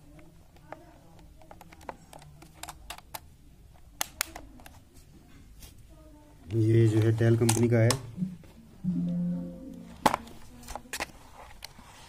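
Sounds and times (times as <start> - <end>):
plastic keyboard clicks and taps: 0.2 - 3.3.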